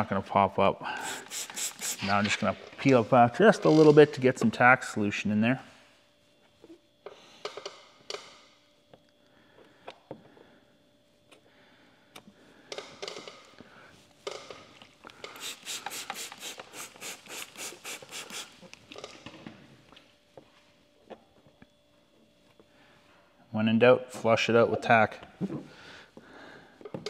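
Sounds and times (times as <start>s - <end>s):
trigger spray bottle spraying: 1.0s - 2.4s, 15.3s - 18.8s.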